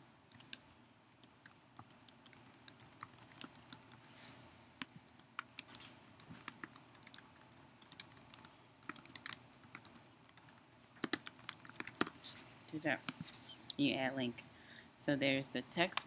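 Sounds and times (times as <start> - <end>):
typing on keyboard: 1.2 - 4.0, 5.1 - 12.2.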